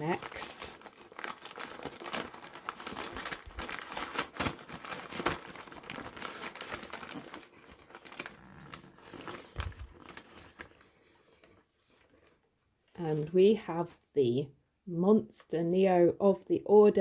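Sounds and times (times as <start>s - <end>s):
newspaper crinkling: 0.0s - 13.3s.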